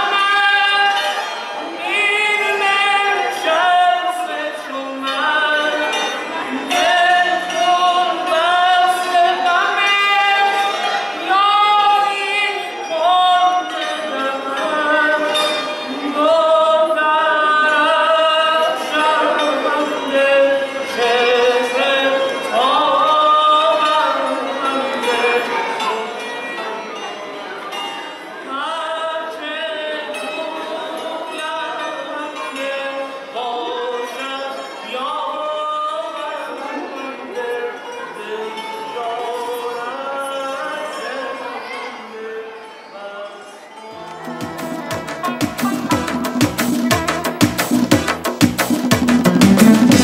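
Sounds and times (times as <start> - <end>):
hammered dulcimer: 43.8 - 50.0.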